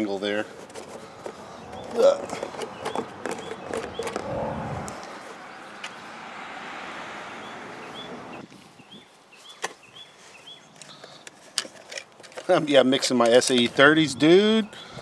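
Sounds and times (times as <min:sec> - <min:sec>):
handling noise: 0:00.0 - 0:06.0.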